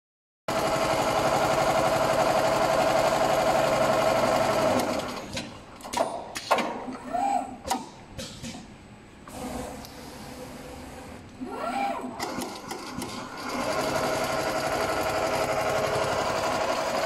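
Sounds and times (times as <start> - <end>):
sharp clicks and knocks: 5.3 - 6.9, 7.6 - 8.8.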